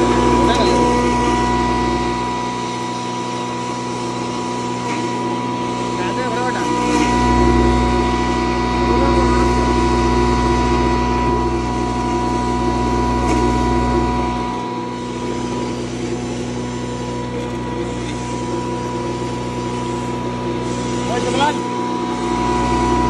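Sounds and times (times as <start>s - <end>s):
deep grinding rumble: 0.0s - 3.0s, 6.8s - 23.0s
motor hum: 0.0s - 23.0s.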